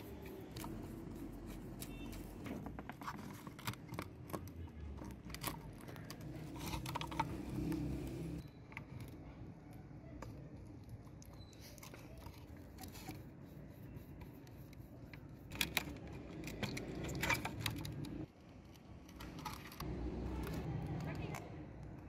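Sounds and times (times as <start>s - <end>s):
plastic clicks and rattles: 15.5s - 19.8s.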